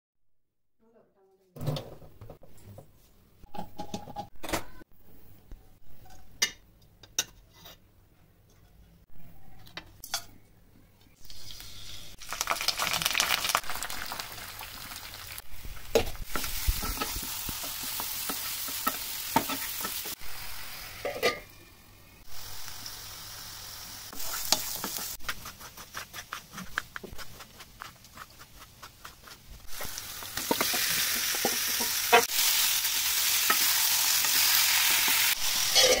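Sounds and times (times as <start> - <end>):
food sizzling in oil: 11.2 - 26.1, 29.6 - 36.0.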